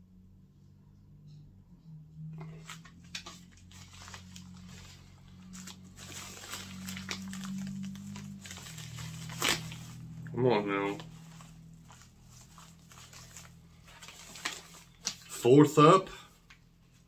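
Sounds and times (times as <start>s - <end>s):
low steady hum: 0.0s - 17.0s
coffee bag crinkling: 2.6s - 10.3s, 10.9s - 15.4s.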